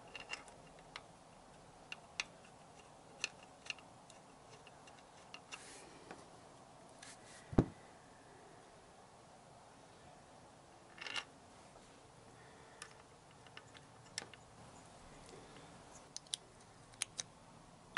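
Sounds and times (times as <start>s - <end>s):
light clicks and taps of handling parts: 0.0s - 6.2s, 12.7s - 14.5s, 15.2s - 17.3s.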